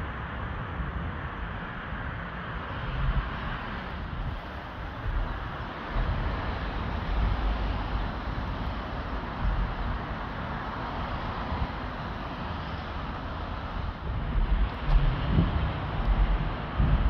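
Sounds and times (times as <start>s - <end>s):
road traffic drone: 0.0s - 17.0s
wind buffeting microphone: 0.0s - 17.0s.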